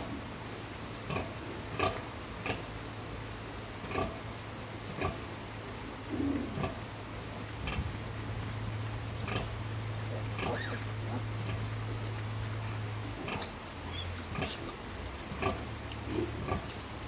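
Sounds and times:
pigs grunting and squealing: 10.1s - 11.7s, 13.1s - 14.8s.

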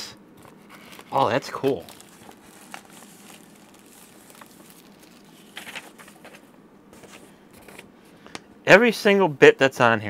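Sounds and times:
paper and plastic sleeve rustling: 0.4s - 7.9s.

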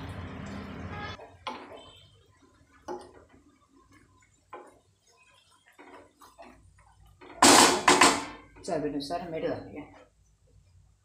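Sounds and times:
spatula stirring thick curry: 1.1s - 7.4s.

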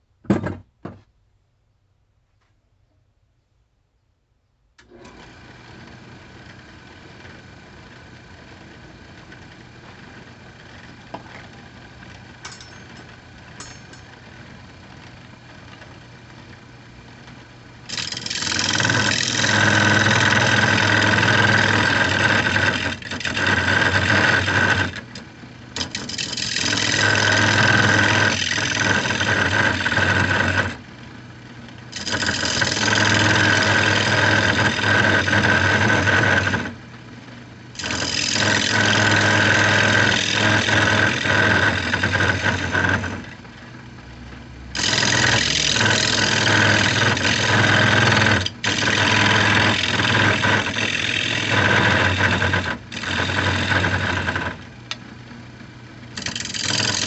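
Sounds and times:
turning tool cutting wood: 17.8s - 30.8s, 31.9s - 36.8s, 37.8s - 43.4s, 44.7s - 54.8s, 56.1s - 57.0s
wood lathe motor hum: 17.8s - 30.9s, 31.9s - 36.8s, 37.8s - 43.4s, 44.8s - 55.0s, 56.1s - 57.0s.

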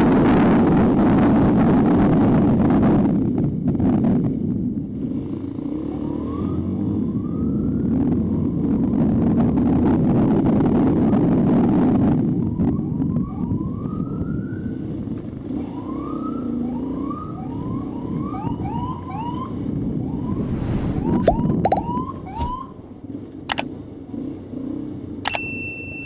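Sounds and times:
motorcycle siren whooping: 5.6s - 9.3s, 12.0s - 23.1s
wind noise: 7.5s - 15.1s, 17.6s - 23.6s
sharp clicks: 23.5s - 23.7s.

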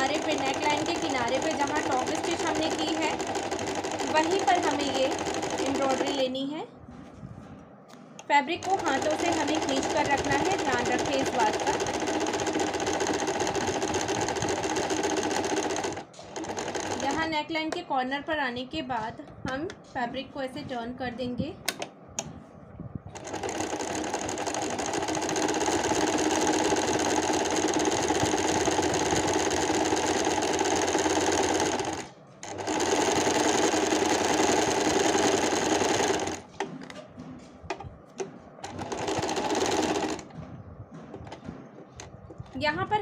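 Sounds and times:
sewing machine stitching: 0.0s - 6.3s, 8.5s - 17.4s, 23.2s - 37.0s, 38.6s - 40.3s.

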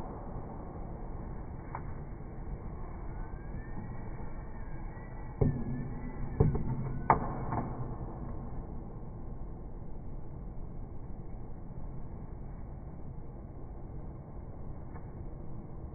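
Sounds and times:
faint rising and falling tone: 0.0s - 15.9s
steady background hum: 0.0s - 15.9s.

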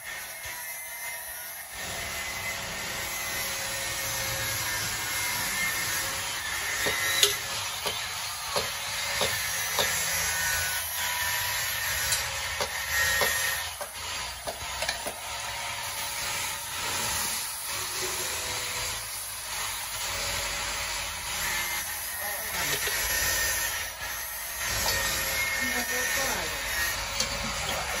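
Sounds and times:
sharp clicks and knocks: 6.8s - 10.0s, 12.1s - 15.2s.

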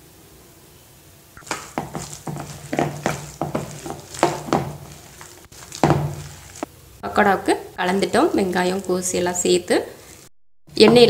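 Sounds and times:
hand squeezing thick batter: 1.4s - 6.7s.

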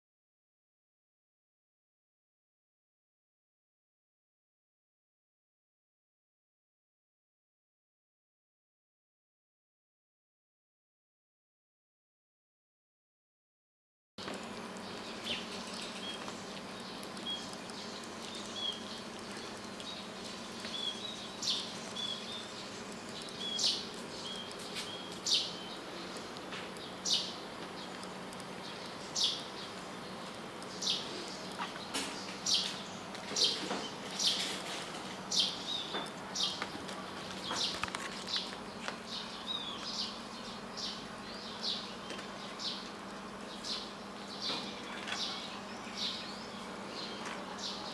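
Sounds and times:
faint steady hum: 14.2s - 47.9s
small birds chirping: 14.2s - 47.9s.

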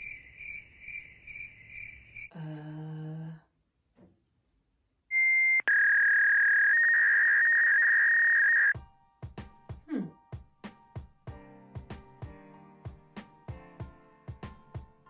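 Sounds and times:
electronic beep tone: 5.1s - 8.8s.

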